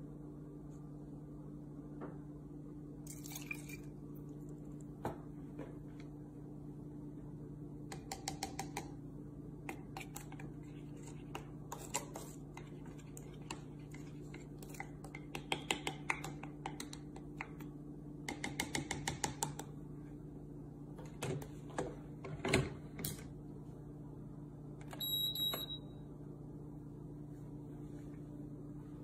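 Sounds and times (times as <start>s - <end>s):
double electronic beep: 25.0s - 25.9s.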